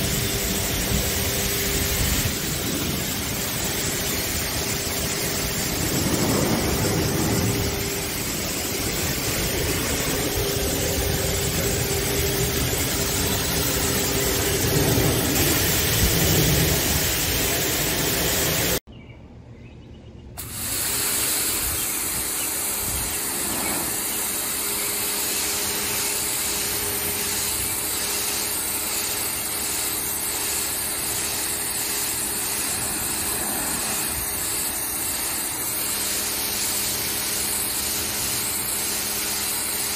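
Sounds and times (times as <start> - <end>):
pressure washer spray hissing: 0.0 - 18.8, 20.4 - 39.9
low engine rumble: 0.0 - 20.4, 31.7 - 35.7.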